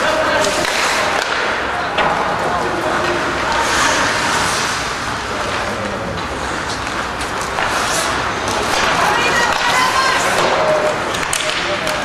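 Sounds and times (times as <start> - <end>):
skate blades scraping ice: 2.2 - 12.0.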